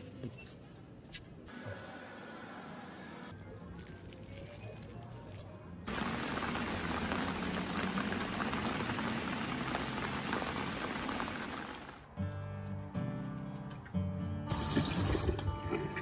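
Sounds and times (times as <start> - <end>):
steady rain falling: 5.9 - 12.1.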